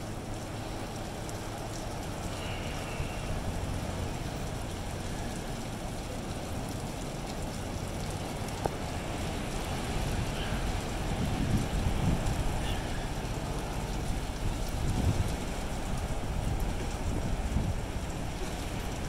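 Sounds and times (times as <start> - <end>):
surf washing over rocks: 0.0 - 19.0
wind on microphone: 10.0 - 13.0, 14.0 - 19.0.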